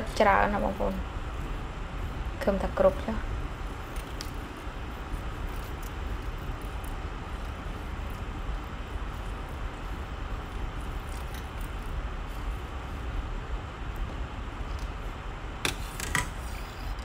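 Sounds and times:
broth boiling: 0.0s - 17.0s.

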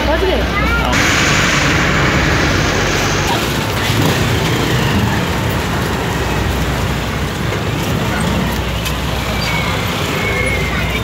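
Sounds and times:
engines rumbling: 0.9s - 11.0s
loud rushing hiss: 1.0s - 4.9s.

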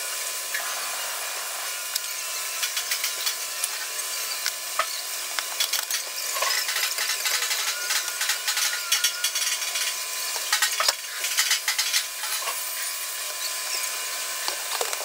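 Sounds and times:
workshop hiss: 0.0s - 15.0s
clicks and scraping on sheet metal: 2.6s - 3.9s, 5.6s - 12.6s.

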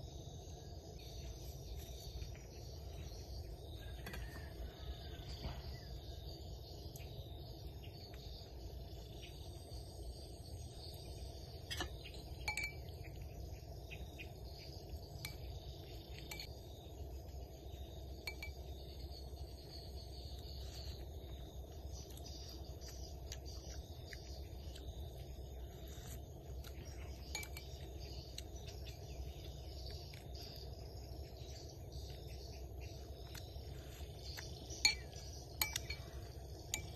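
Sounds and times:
bird chirps: 0.0s - 36.9s
insect drone: 0.0s - 36.9s
spoon clicking on ceramic bowl: 34.9s - 36.9s.

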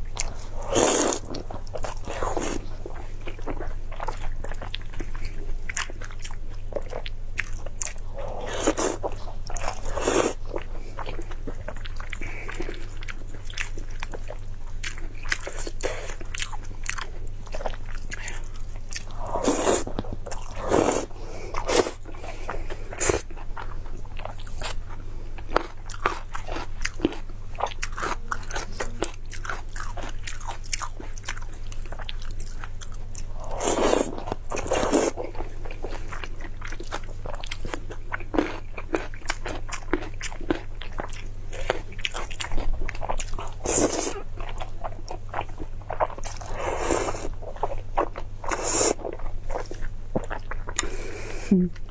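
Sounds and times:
wet chewing and mouth sounds: 0.0s - 51.9s
slurping: 19.2s - 19.9s.

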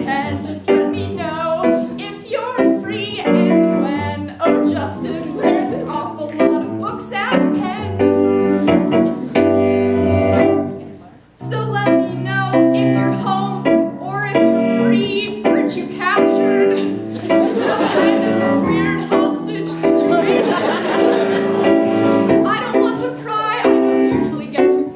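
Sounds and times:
woman singing: 0.0s - 8.1s, 11.4s - 17.0s, 18.6s - 20.4s, 22.4s - 24.9s
electric keyboard: 4.5s - 10.9s, 12.2s - 24.8s.

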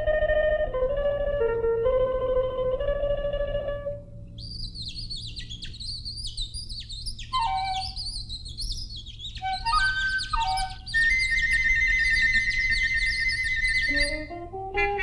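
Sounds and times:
low hum: 0.0s - 14.8s
bird twittering: 4.4s - 14.3s.

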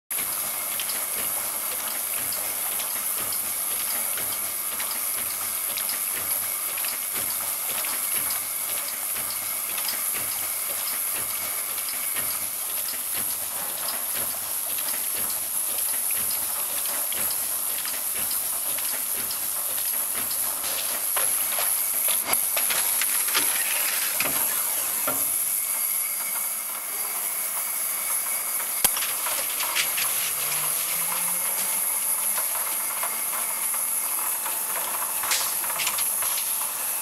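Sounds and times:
mechanism clicks and clatters: 0.2s - 25.4s, 28.2s - 37.0s
water spray hissing: 28.9s - 32.0s.

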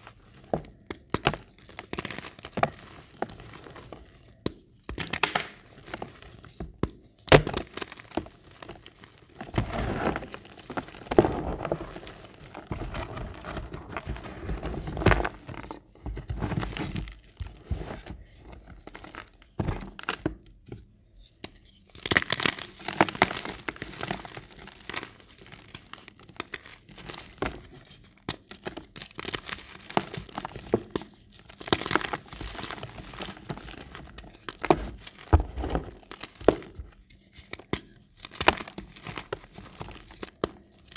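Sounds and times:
chalk crunching and cracking: 0.0s - 19.5s.

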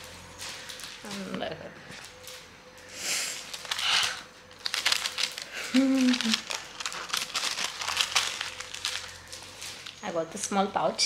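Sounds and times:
paper wrapping crinkling: 0.0s - 10.7s
person humming: 5.7s - 6.4s.

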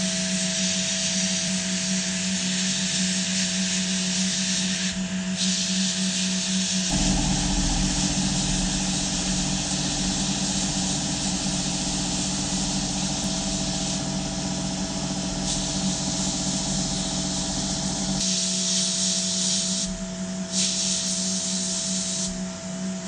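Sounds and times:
hiss of blasting grit on metal: 0.3s - 22.4s
machine hum: 6.9s - 18.2s.

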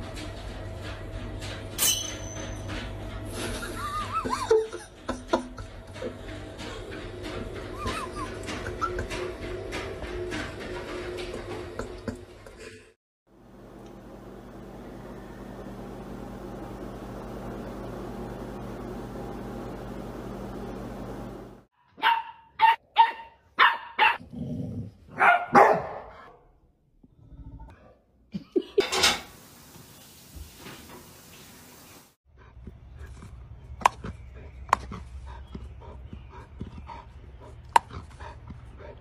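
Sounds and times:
steady low hum: 13.4s - 21.7s
dog barking: 21.8s - 24.2s, 25.1s - 26.4s.

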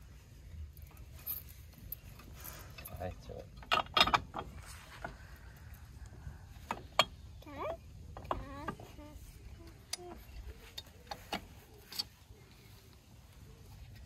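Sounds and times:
metal clicks and knocks: 2.0s - 5.1s.

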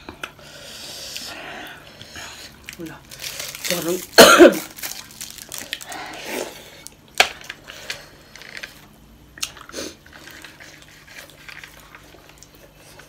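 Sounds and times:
chewing and mouth noises: 7.6s - 13.0s.

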